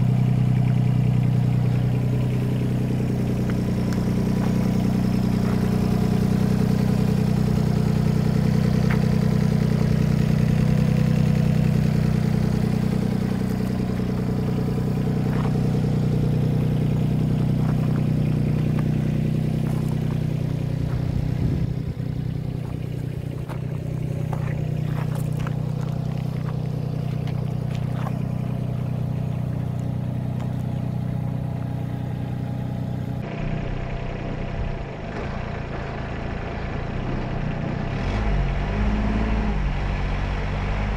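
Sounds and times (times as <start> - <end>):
diesel engine idling: 0.0 - 39.0.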